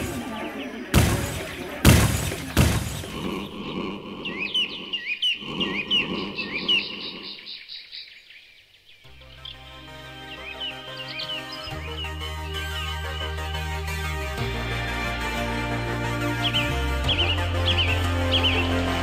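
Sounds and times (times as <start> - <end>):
small birds chirping: 0.0 - 14.8, 16.1 - 19.0
music: 9.1 - 19.0.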